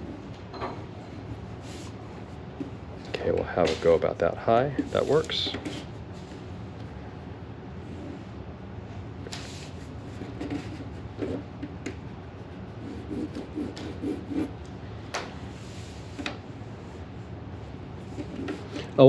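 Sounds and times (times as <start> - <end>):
pencil strokes scratching paper: 12.3 - 14.5.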